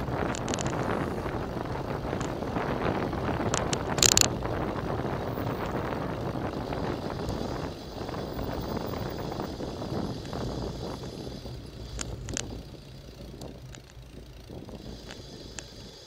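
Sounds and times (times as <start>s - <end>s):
bicycle tyre and road rumble: 0.0s - 16.0s
wind on camera microphone: 0.0s - 16.0s
sharp clicks: 0.2s - 1.0s, 3.3s - 4.4s.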